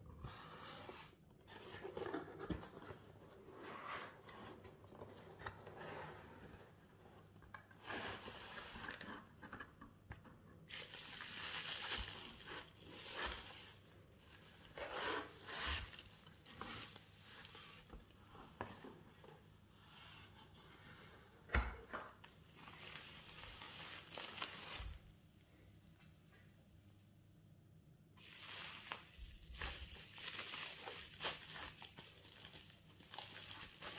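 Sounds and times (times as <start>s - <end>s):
bubble wrap crinkling: 10.7s - 18.2s, 22.2s - 25.1s, 28.2s - 33.9s
cardboard scraping: 12.0s - 18.8s.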